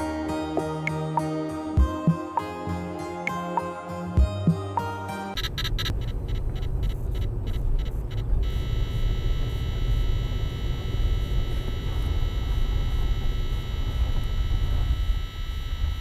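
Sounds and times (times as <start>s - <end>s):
high whine: 0.0s - 16.0s
rapid ticking: 5.4s - 15.1s
car road and engine rumble: 5.4s - 16.0s.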